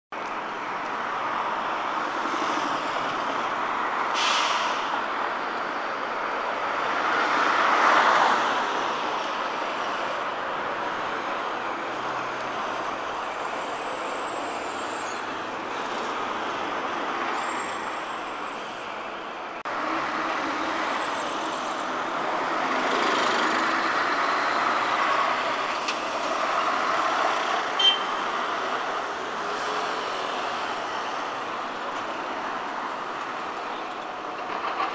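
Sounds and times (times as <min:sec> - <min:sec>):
lorries and cars passing: 0:00.1 - 0:34.9
brief hiss: 0:04.2 - 0:04.9.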